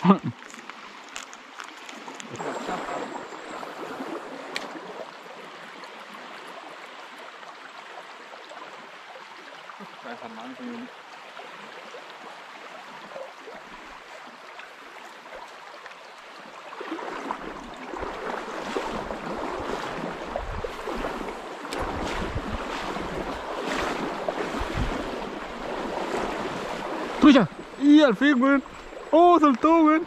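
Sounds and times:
river water rushing: 0.0 - 30.0
wind buffeting microphone: 18.9 - 27.8.

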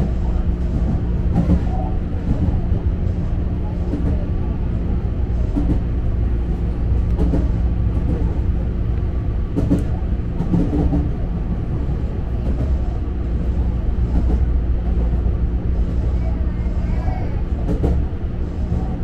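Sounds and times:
train hum: 0.0 - 19.0
train wheels rumbling on rail: 0.0 - 19.0.

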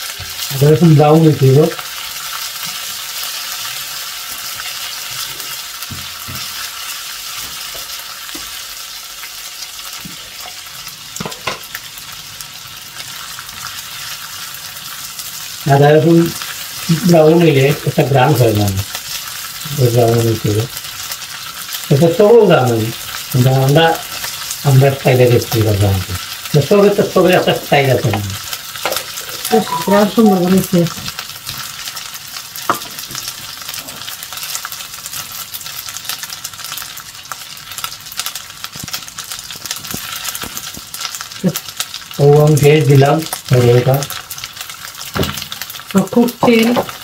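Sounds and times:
ginger and garlic sizzling in oil: 0.0 - 47.0
spatula scraping pan squeakily: 29.0 - 30.4.

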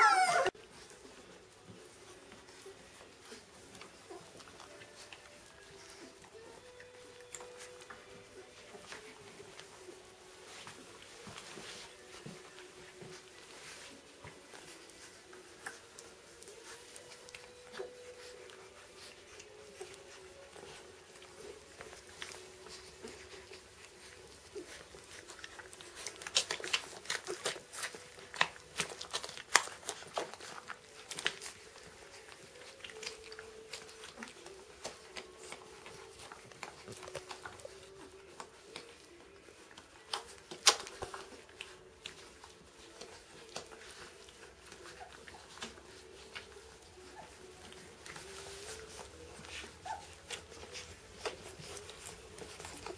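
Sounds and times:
puppies suckling: 0.0 - 52.9
wet smacking clicks: 40.1 - 42.2.

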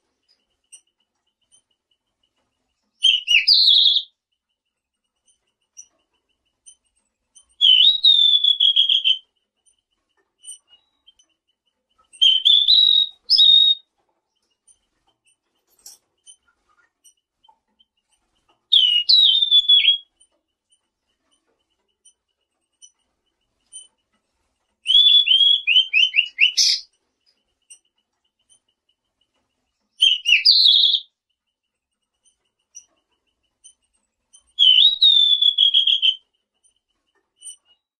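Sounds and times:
songbird whistling: 3.0 - 4.1, 7.6 - 9.2, 12.2 - 13.9, 18.7 - 20.1, 24.8 - 26.9, 30.0 - 31.1, 34.5 - 36.2.

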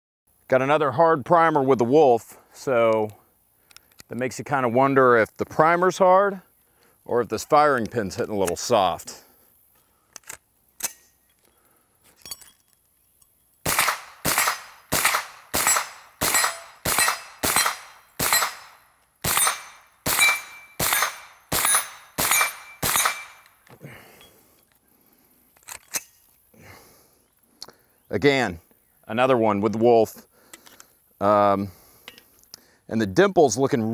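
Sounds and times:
gun handling clicks: 2.9 - 4.2, 9.8 - 11.6, 12.2 - 23.8, 25.5 - 26.4, 30.5 - 30.9
gunshots: 13.7 - 23.4
steel plate target ringing: 15.6 - 23.4.

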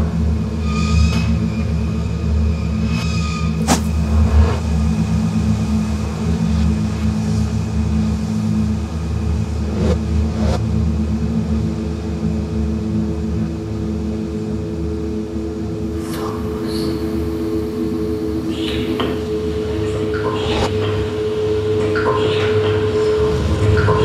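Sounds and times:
low mechanical rumble: 3.4 - 20.0
steady hum tones: 3.5 - 24.0
sharp crack: 3.6 - 4.0.

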